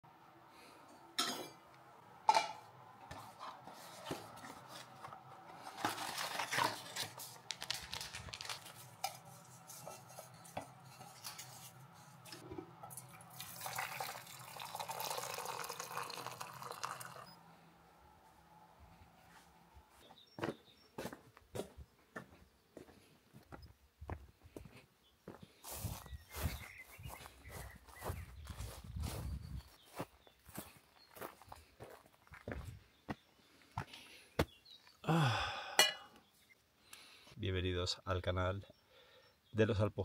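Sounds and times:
tea bag rustling and clicks: 5.6 - 10.0
water pouring into steel mug: 12.9 - 17.4.

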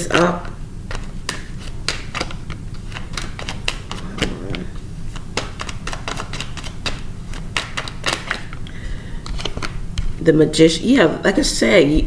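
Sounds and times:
steady low hum: 0.4 - 7.6
cards clicking and snapping: 0.9 - 4.0, 5.1 - 8.6, 9.2 - 9.8.

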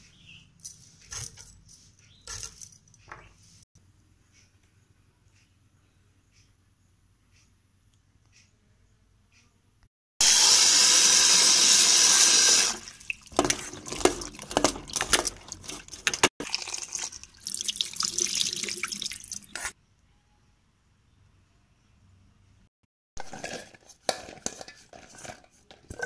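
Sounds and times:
tap water running into a bowl: 10.8 - 19.6.

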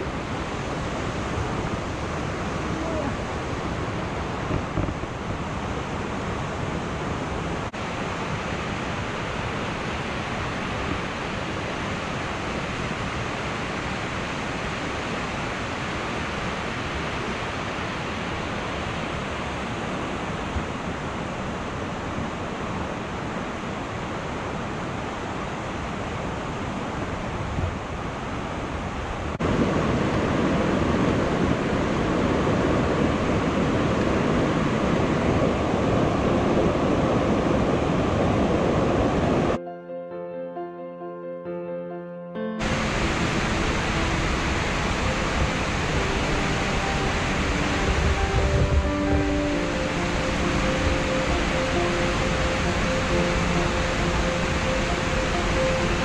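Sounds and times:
waterfall rushing: 0.0 - 27.4, 42.6 - 56.0.

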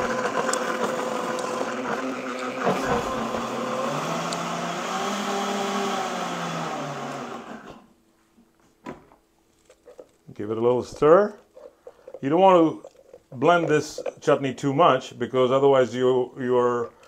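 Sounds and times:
blender motor running: 0.0 - 7.8.

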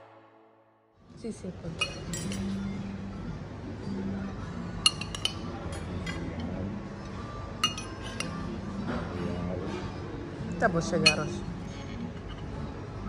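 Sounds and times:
metal spoon clinking on ceramic: 1.8 - 2.7, 4.8 - 6.2, 7.6 - 8.4, 11.0 - 11.4.

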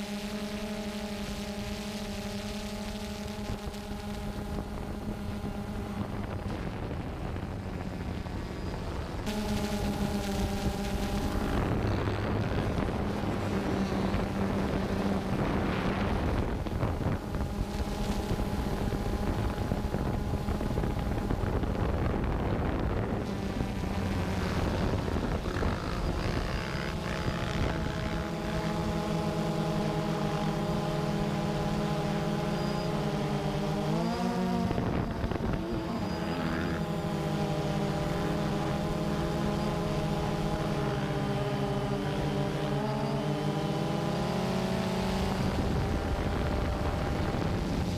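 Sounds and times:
drone motors whining: 0.0 - 47.9.

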